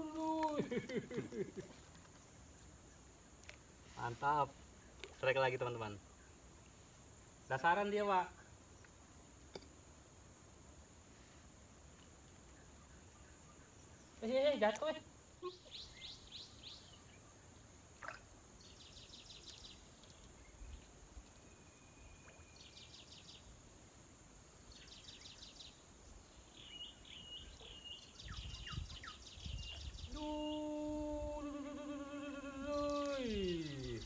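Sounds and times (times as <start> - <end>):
small birds trilling: 12.5 - 17.6, 24.7 - 34.0
person humming low note: 30.2 - 34.0.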